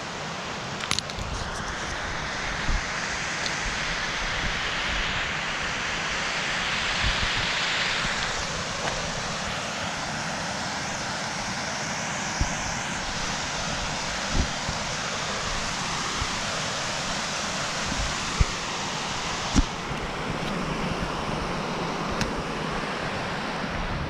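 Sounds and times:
stream running: 0.0 - 24.0
wind: 0.0 - 24.0.

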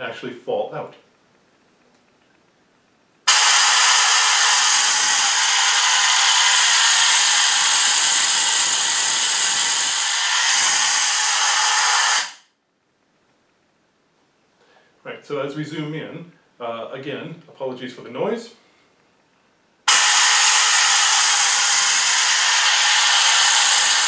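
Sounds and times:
compressed air hissing: 3.2 - 12.5, 19.9 - 24.0.

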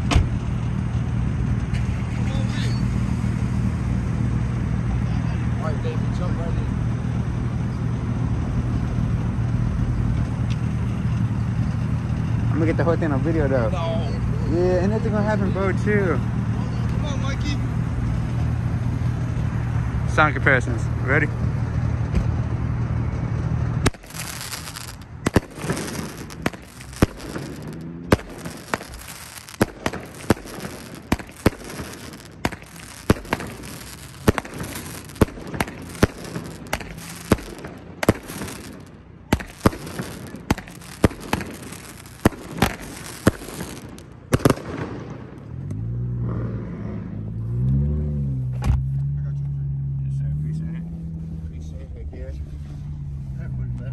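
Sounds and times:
firework sparks hissing: 23.8 - 45.0
firework sharp cracks: 23.8 - 45.6.

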